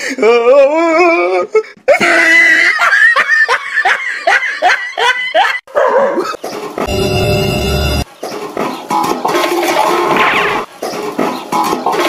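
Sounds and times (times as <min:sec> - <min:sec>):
person laughing hard: 0:00.7 - 0:06.4.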